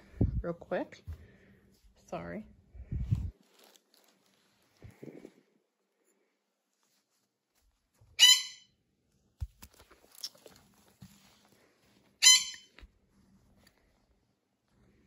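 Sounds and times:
high-pitched squeaks: 8.2 - 8.7, 12.2 - 12.8.

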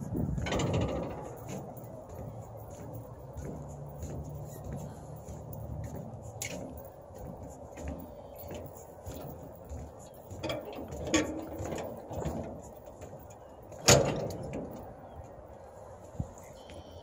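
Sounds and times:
footsteps on floating dock: 0.0 - 17.0.

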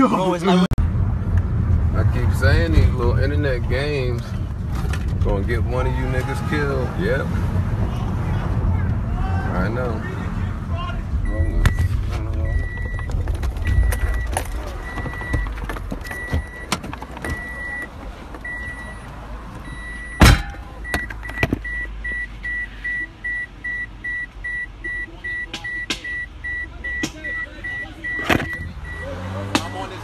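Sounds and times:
low rumble: 0.8 - 5.4
car warning chime beeping: 11.2 - 30.0
loud thump: 20.1 - 20.7.

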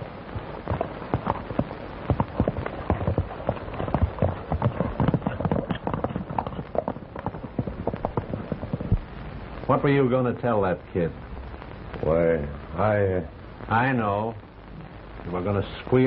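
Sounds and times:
hooves clopping on dirt road: 0.0 - 9.1.

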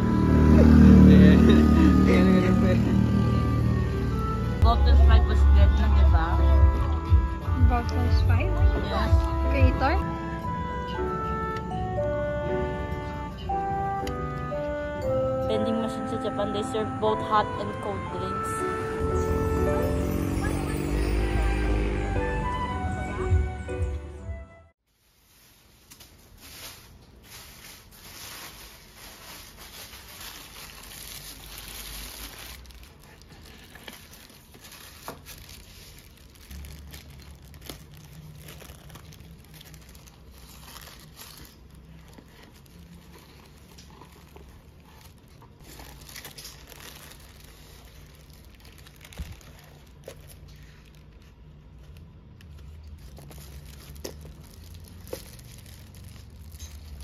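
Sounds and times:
tissue paper rustling: 24.9 - 57.0
plastic wrapping tearing and crinkling: 25.0 - 57.0.

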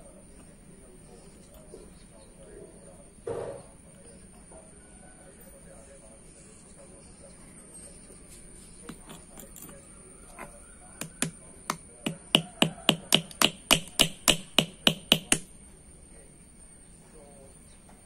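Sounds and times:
hammer tapping metal rivets: 8.9 - 9.8, 11.0 - 15.5.

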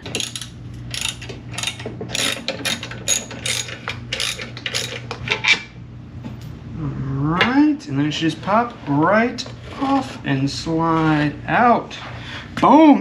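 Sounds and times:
ratchet wrench clicking: 0.1 - 5.0.

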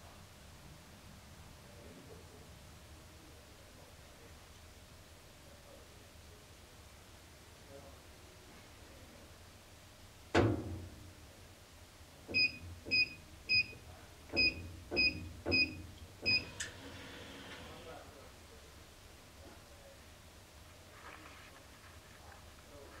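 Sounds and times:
safe door thud: 10.4 - 11.0
keypad beeps: 12.3 - 13.8, 14.4 - 16.5.

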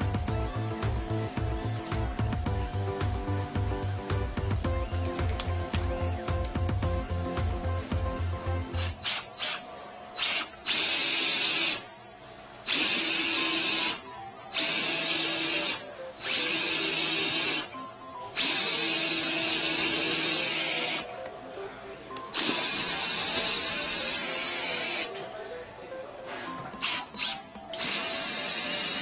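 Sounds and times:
cordless drill spinning drain cable: 8.8 - 11.8, 12.7 - 14.0, 14.6 - 17.7, 18.4 - 21.0, 22.4 - 25.1, 26.8 - 29.0.

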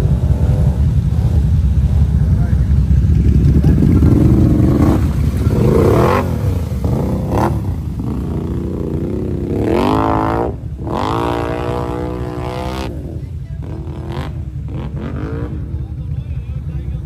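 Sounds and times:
atv engine revving: 0.0 - 17.0
mud and water splashing: 3.1 - 15.5.

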